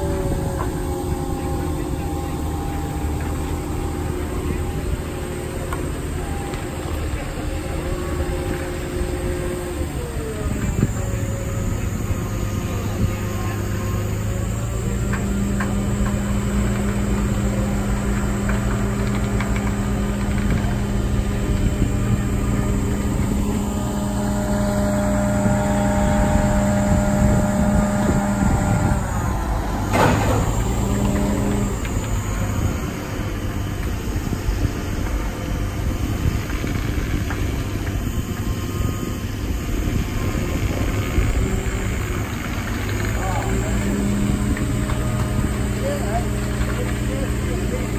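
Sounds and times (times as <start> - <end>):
diesel engine running: 0.0 - 47.9.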